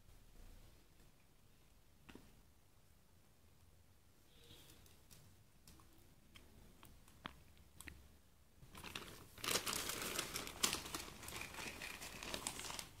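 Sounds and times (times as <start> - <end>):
plastic crinkling and rustling: 8.6 - 13.0.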